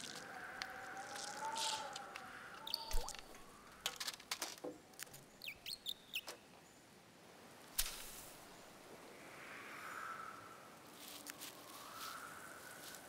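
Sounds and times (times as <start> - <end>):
high squeaky bird chirps: 2.6 - 3.2, 5.4 - 6.4.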